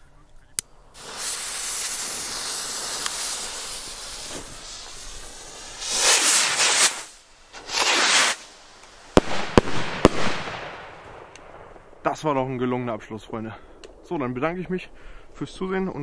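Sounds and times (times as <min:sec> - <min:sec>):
firework fuses hissing: 0:00.6 - 0:10.6
sharp cracks: 0:00.6 - 0:12.4
rockets launching whoosh: 0:00.9 - 0:12.1.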